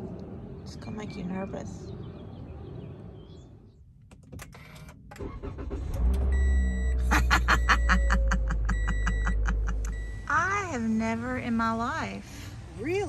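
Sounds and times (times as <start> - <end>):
car engine starting and humming: 0.0 - 13.0
clicks inside car cabin: 4.0 - 5.2
electronic warning chimes: 6.3 - 10.4.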